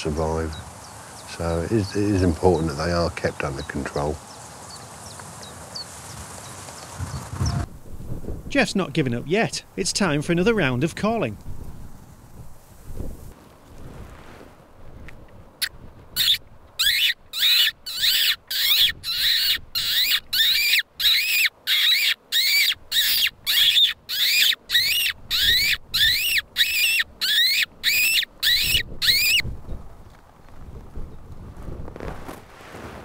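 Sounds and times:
high squeaks of mouth call: 0:15.6 - 0:29.4.

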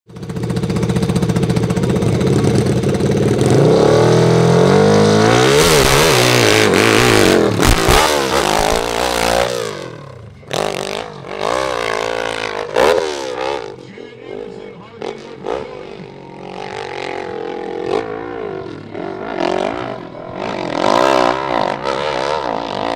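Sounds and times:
clatter: 0:00.1 - 0:13.8
motorcycle engine revving: 0:00.1 - 0:22.9.

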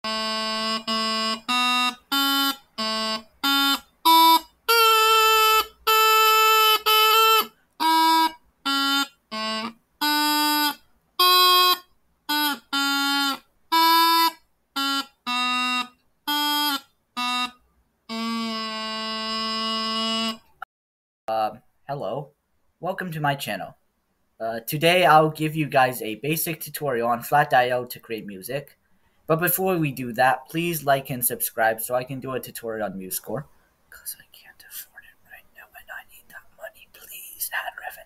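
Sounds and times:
bagpipe melody: 0:00.0 - 0:20.6.

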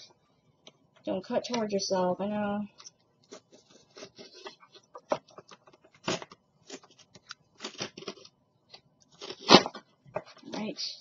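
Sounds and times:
knife cutting packaging: 0:03.3 - 0:04.9, 0:07.6 - 0:08.3, 0:09.2 - 0:09.8
plastic packaging crackling: 0:03.3 - 0:08.3.

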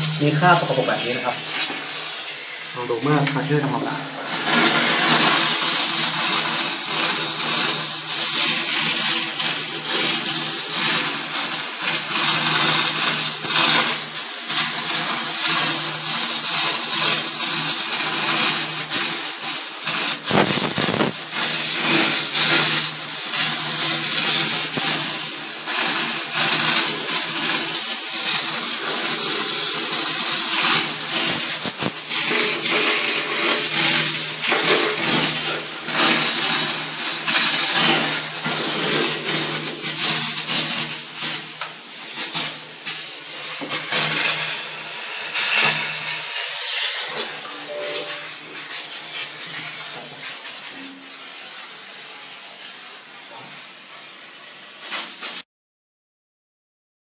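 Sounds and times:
steam cleaner hissing: 0:00.0 - 0:55.4.

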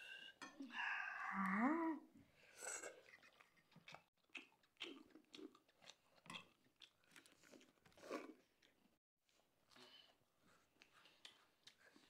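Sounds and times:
chewing and lip smacking: 0:02.8 - 0:08.8, 0:09.7 - 0:12.0.

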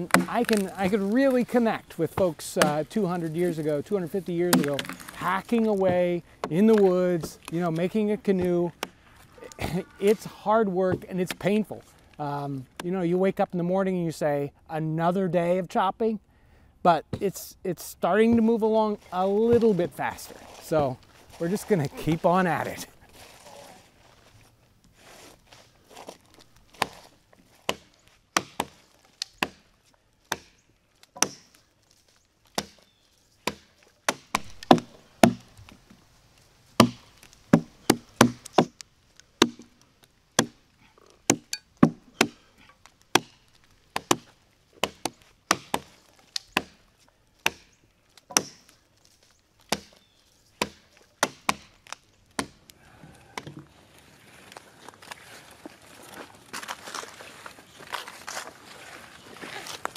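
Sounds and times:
adzes chopping into log: 0:00.0 - 0:01.4, 0:02.2 - 0:02.8, 0:04.5 - 0:07.6, 0:26.7 - 0:29.7, 0:30.3 - 0:31.6, 0:32.5 - 0:35.6, 0:36.8 - 0:38.8, 0:39.4 - 0:39.8, 0:40.4 - 0:40.6, 0:41.2 - 0:46.8, 0:47.4 - 0:48.8, 0:49.6 - 0:50.0, 0:50.6 - 0:52.6.

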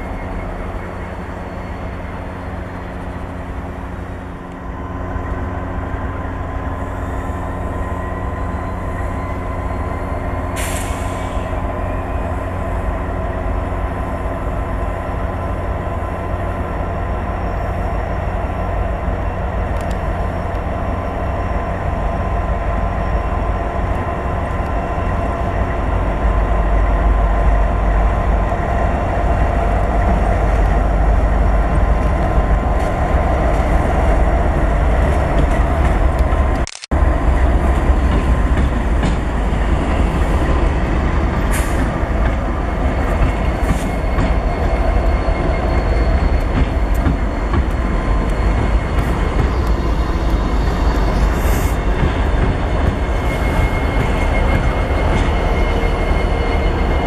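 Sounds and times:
diesel locomotive engine rumble: 0:00.0 - 0:57.0
camera click: 0:36.6 - 0:36.9.

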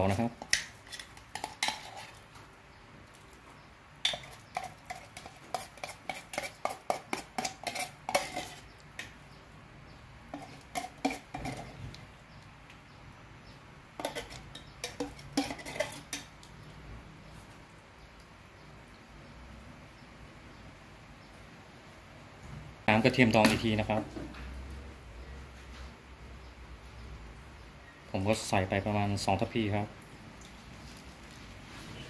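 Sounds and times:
metal spoon clinking and scraping: 0:00.0 - 0:02.4, 0:04.0 - 0:09.1, 0:10.3 - 0:12.0, 0:14.0 - 0:16.5.

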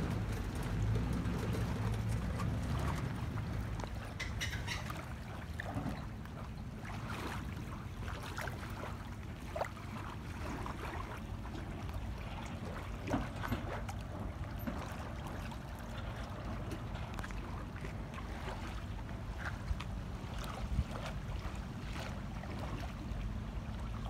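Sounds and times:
small waves lapping: 0:00.0 - 0:24.0
wind rumble on microphone: 0:16.0 - 0:24.0.

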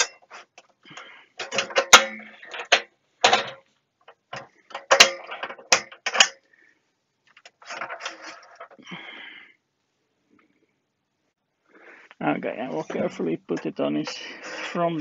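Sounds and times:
metal case scraping and rattling: 0:00.0 - 0:03.6, 0:04.3 - 0:06.4, 0:07.4 - 0:08.8
sharp metallic clanks: 0:00.0 - 0:03.6, 0:04.4 - 0:06.5.

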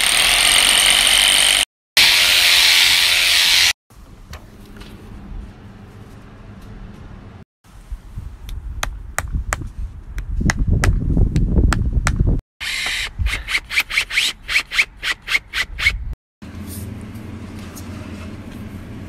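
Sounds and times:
drill grinding into concrete: 0:00.0 - 0:03.8.

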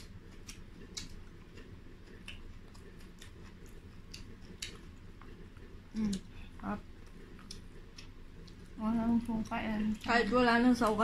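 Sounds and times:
crunching of fried chicken chewed: 0:00.0 - 0:08.8.

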